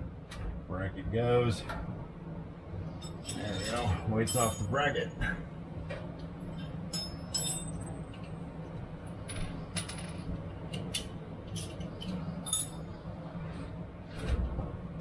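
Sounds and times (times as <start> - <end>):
steady low hum: 0.0 - 15.0
metal tools clinking: 3.0 - 4.8, 6.6 - 8.3, 10.8 - 12.9.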